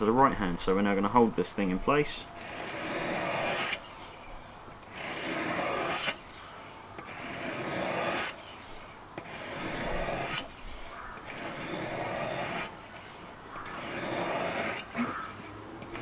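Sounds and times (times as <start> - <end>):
sharpening stone rasping on knife: 4.9 - 6.2, 7.0 - 16.0.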